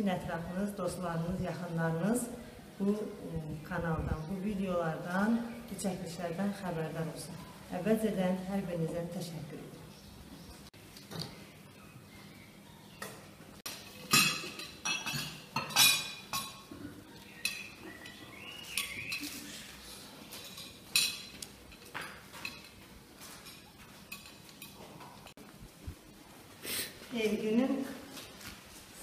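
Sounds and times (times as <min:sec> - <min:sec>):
plates and cutlery clinking: 0:13.7 - 0:25.4.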